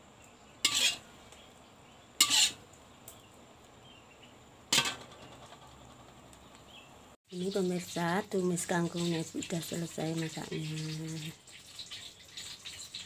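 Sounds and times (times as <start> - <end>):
utensil clattering against pan: 4.8 - 6.1.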